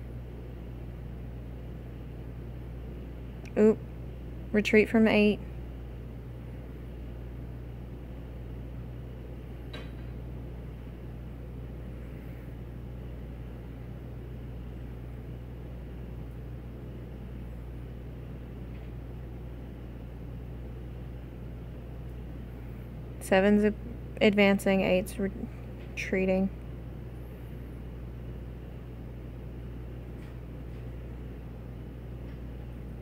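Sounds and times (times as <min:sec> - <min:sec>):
room hum with hiss: 0:00.0 - 0:33.0.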